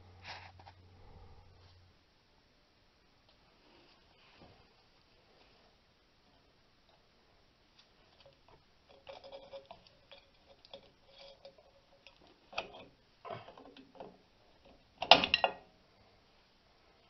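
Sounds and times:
metal clanks: 8.9 - 15.7.

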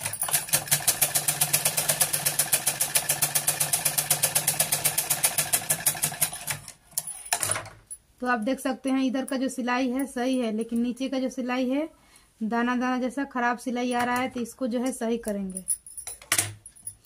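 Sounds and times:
sewing machine stitching: 0.0 - 6.8.

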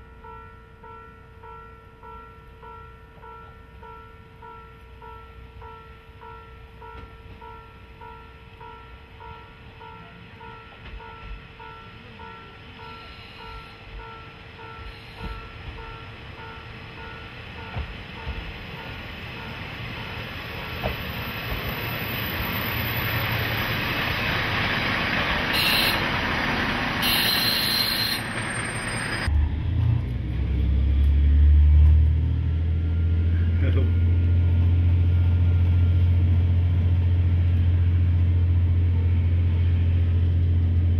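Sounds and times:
diesel railcar engine and wheels: 0.0 - 40.9.

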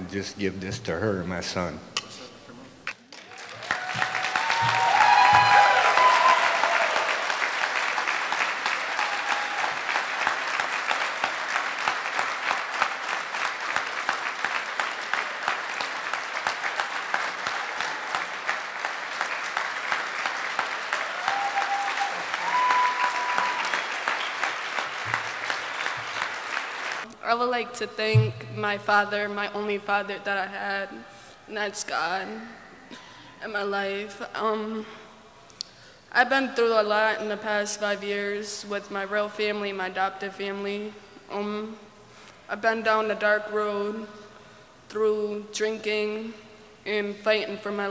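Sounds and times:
audience applauding: 2.9 - 27.1.

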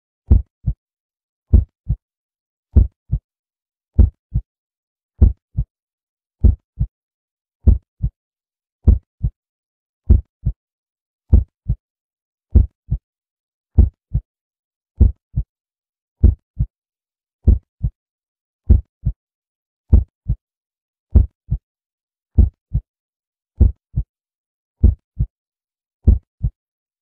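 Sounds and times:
heartbeat thumps: 0.3 - 0.8, 1.5 - 2.0, 2.8 - 3.2, 4.0 - 4.4, 5.2 - 5.7, 6.4 - 6.9, 7.6 - 8.1, 8.9 - 9.4, 10.1 - 10.6, 11.3 - 11.8, 12.6 - 13.0, 15.0 - 15.5, 16.2 - 16.7, 17.5 - 18.0, 18.7 - 19.2, 19.9 - 20.4, 21.2 - 21.6, 22.4 - 22.8, 23.6 - 24.1, 24.8 - 25.3, 26.1 - 26.6.

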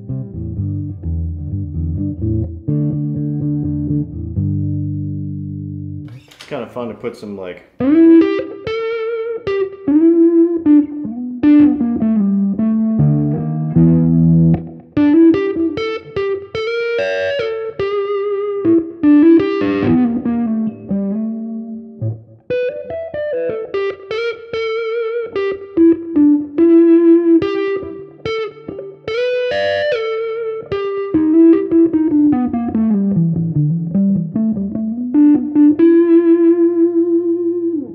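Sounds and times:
electric guitar lead lines: 0.0 - 6.5, 7.8 - 37.9
electric guitar strums: 7.7 - 37.9.

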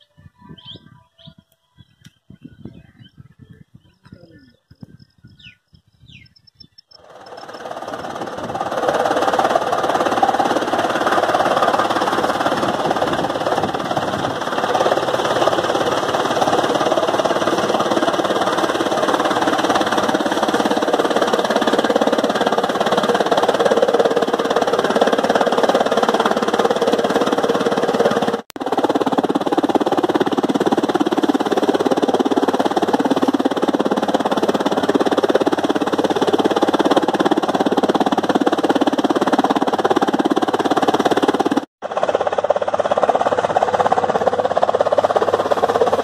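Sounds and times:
faint bird chirps: 0.0 - 7.0
tractor engine: 7.0 - 46.0.

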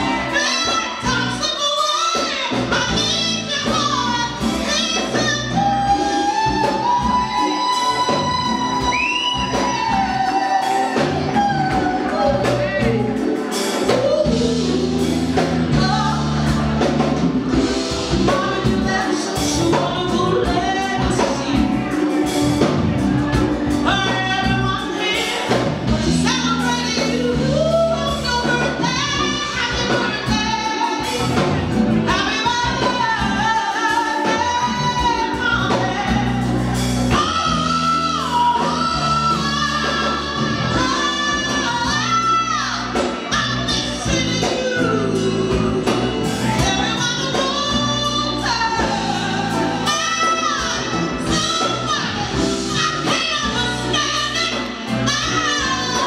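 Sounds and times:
bass guitar: 0.0 - 56.0
drums: 0.0 - 56.0
keyboards: 0.0 - 56.0
woman singing: 0.0 - 56.0.

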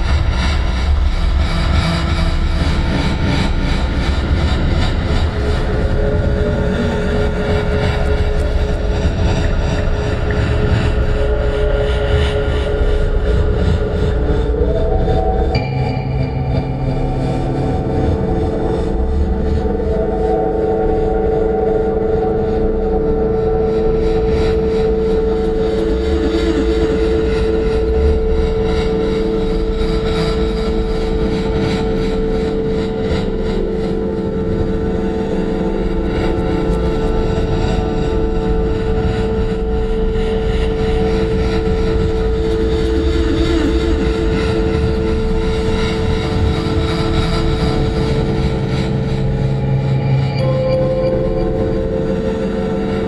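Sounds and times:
electronic drone with held tone: 2.1 - 53.0.

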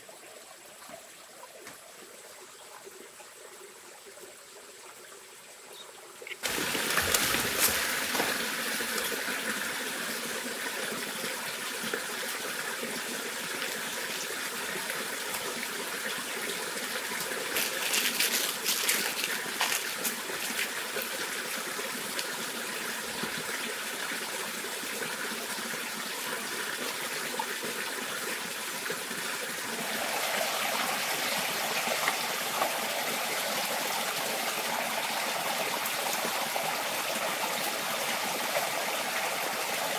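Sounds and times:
stream trickling and splashing: 0.0 - 39.9
leaves crackling: 6.4 - 9.2, 17.2 - 22.3.

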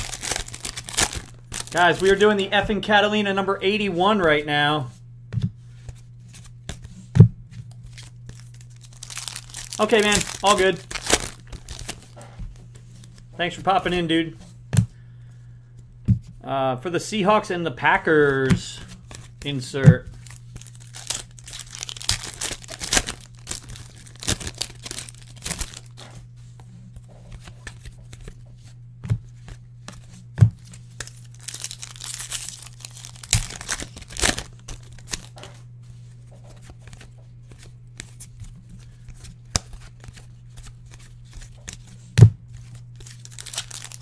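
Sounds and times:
card packs tearing: 0.0 - 2.4, 7.9 - 12.2, 20.1 - 26.0, 30.0 - 35.5, 42.6 - 44.0
foil wrappers crinkling: 0.0 - 2.4, 7.8 - 12.2, 18.3 - 26.1, 30.6 - 35.5, 36.6 - 44.0.

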